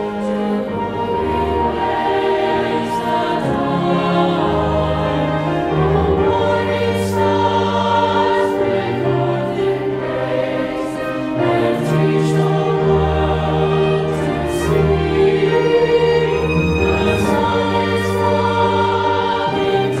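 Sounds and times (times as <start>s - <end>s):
choir singing a carol: 0.0s - 20.0s
instrumental accompaniment low notes: 0.0s - 20.0s.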